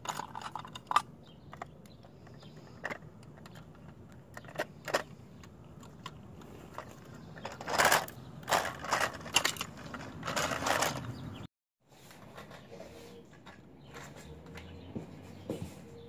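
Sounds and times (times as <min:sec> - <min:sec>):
plastic wheels grinding over concrete: 0:00.0 - 0:11.4.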